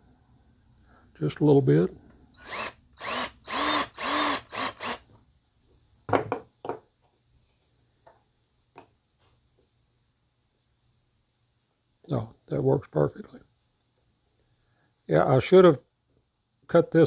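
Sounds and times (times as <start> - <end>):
cordless drill drilling wood: 2.4 - 5.0.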